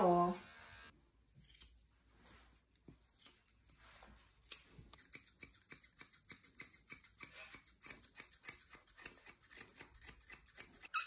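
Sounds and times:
grooming scissors snipping fur: 1.3s - 1.8s, 3.1s - 11.0s.

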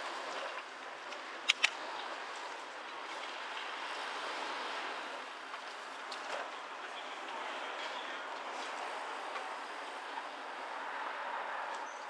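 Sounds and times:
bicycle rolling noise: 0.0s - 12.0s
sharp clicks: 1.4s - 1.8s.

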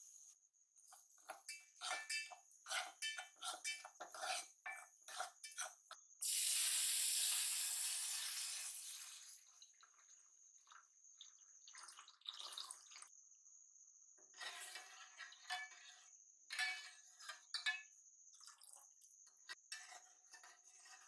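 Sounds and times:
spoon scraping a metal pot: 0.8s - 6.0s, 14.3s - 17.9s, 19.5s - 21.0s
milk sizzling in hot pot: 0.9s - 13.1s.

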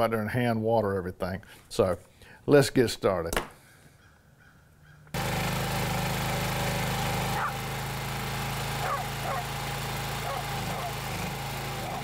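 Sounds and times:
trencher petrol engine running: 5.2s - 12.0s.

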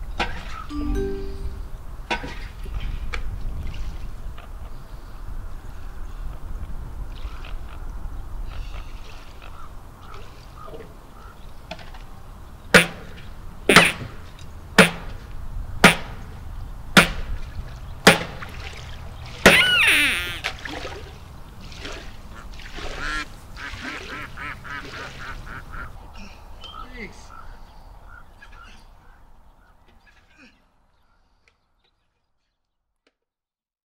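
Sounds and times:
ducks quacking: 22.3s - 26.0s.

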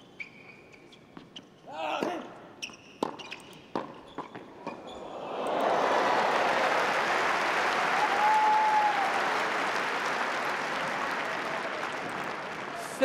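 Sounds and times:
crowd applauding: 4.8s - 13.0s.

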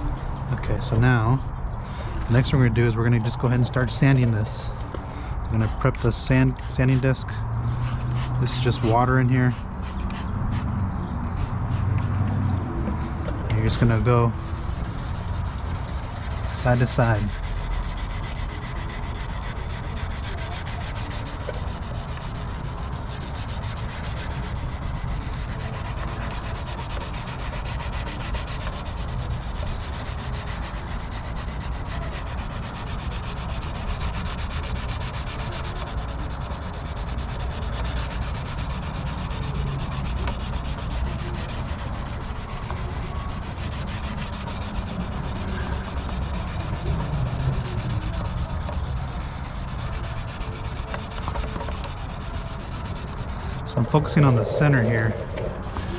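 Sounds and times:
wet sanding plastic by hand: 5.5s - 7.3s, 7.9s - 12.2s, 13.5s - 55.9s.

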